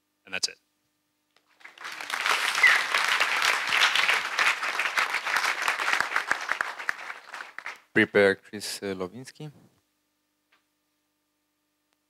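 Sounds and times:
audience applauding: 0:01.5 - 0:07.9.

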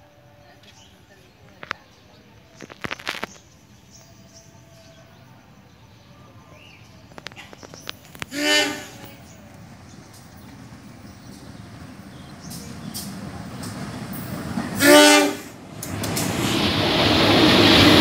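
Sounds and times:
train rumbling: 0:00.0 - 0:18.0
locomotive air horn blast: 0:08.3 - 0:09.1, 0:14.8 - 0:15.6.

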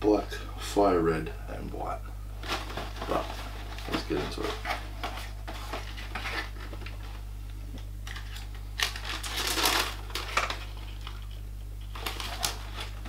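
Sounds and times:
tissue paper rustling: 0:02.4 - 0:07.2, 0:08.1 - 0:11.2, 0:11.8 - 0:13.0.

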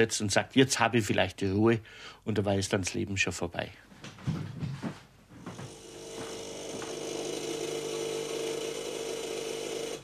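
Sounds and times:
small motor humming: 0:05.7 - 0:10.0.

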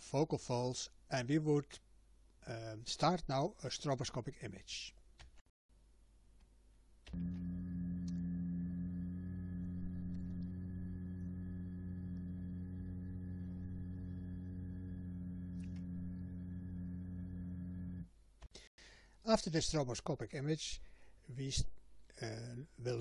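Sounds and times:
person holding a sustained vowel: 0:07.1 - 0:18.1.

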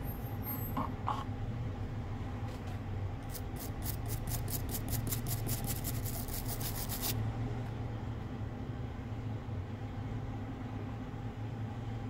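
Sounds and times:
steady low hum: 0:00.0 - 0:12.0
quick scraping strokes: 0:03.3 - 0:07.2.

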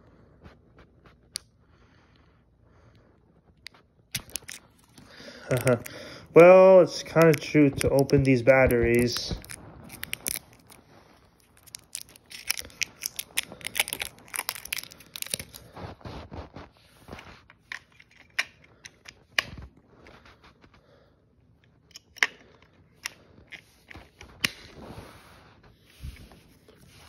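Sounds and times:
plastic packaging crinkling: 0:04.1 - 0:15.8.

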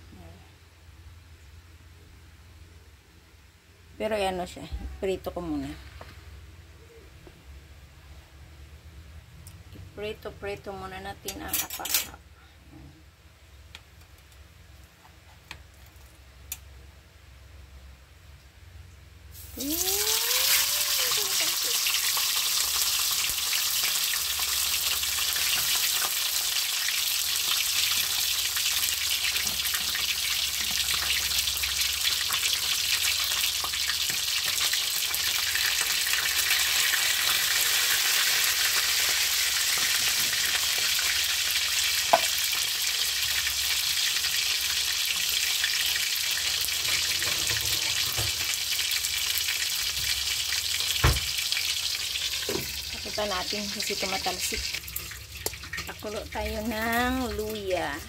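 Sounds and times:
fish sizzling in hot oil: 0:19.3 - 0:58.0.

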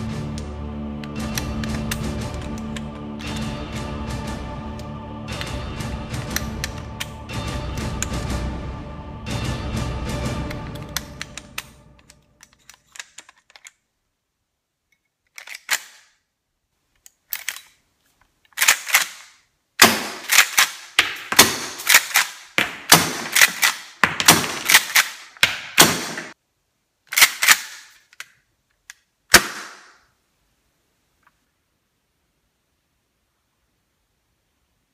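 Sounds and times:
airsoft shotgun shots: 0:19.8 - 0:20.6, 0:21.2 - 0:25.0, 0:25.6 - 0:26.4.

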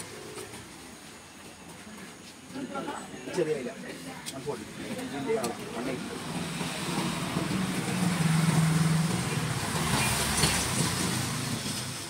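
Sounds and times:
motor vehicle engine running: 0:05.5 - 0:12.0.

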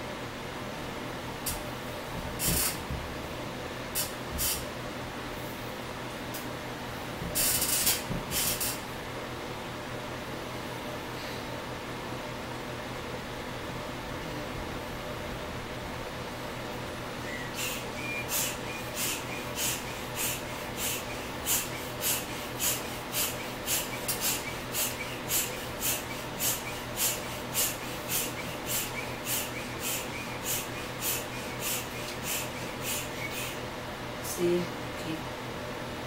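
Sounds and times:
hand pump puffing air: 0:02.4 - 0:02.8, 0:04.0 - 0:04.6, 0:07.3 - 0:08.8, 0:17.2 - 0:33.6.

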